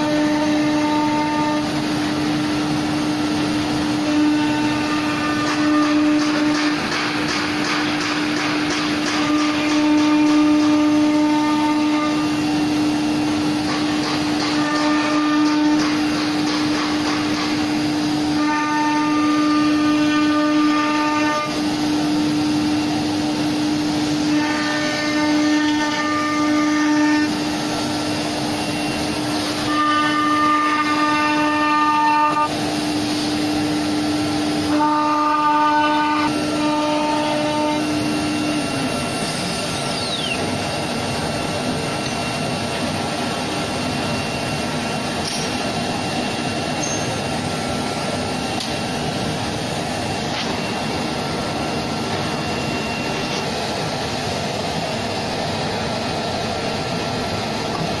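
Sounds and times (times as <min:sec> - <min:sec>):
machine noise: 0:00.0 - 0:58.0
router spindle whine: 0:36.1 - 0:54.2
whistle-like tones: 0:39.7 - 0:40.5.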